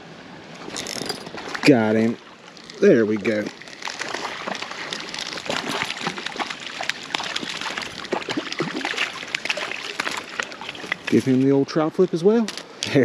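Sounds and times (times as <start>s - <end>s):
fish splashing at the surface: 1.3s - 11.5s.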